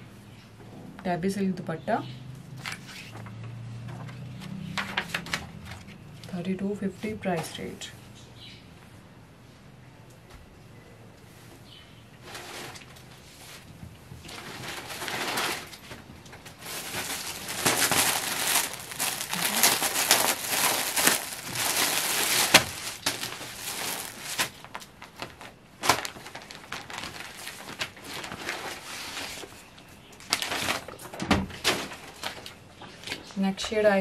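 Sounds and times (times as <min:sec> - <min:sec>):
cloth and paper rustling: 0:12.2 - 0:33.2.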